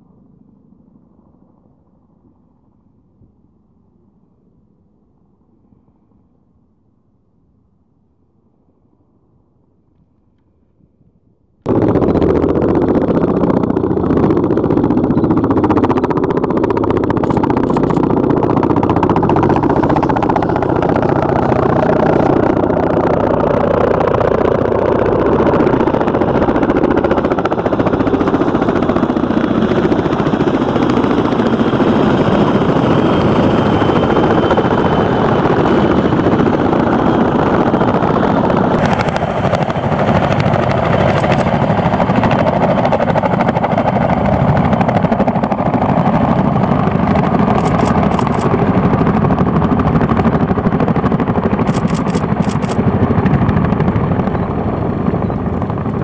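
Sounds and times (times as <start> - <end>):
helicopters rotor and turbine noise: 11.6 - 56.0.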